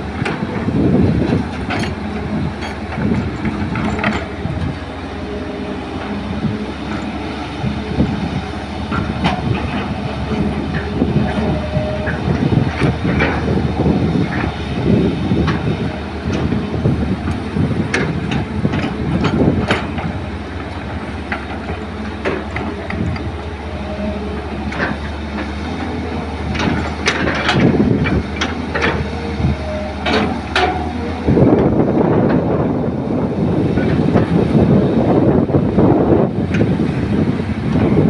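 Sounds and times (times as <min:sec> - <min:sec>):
excavator diesel engine running: 0:00.0 - 0:38.0.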